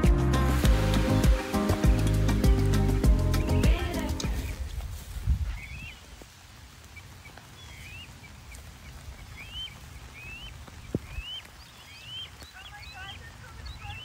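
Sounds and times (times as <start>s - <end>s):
crane chick peeping: 7.2s - 14.0s.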